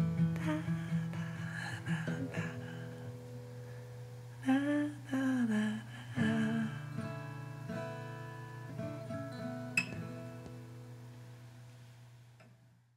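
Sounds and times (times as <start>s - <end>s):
acoustic guitar chords: 0.0s - 11.9s
person humming: 0.4s - 3.0s, 4.4s - 6.9s.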